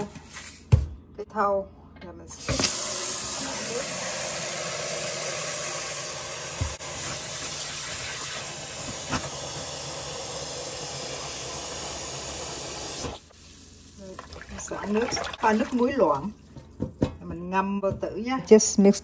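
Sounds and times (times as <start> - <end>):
tap water running into bowl: 2.5 - 9.8.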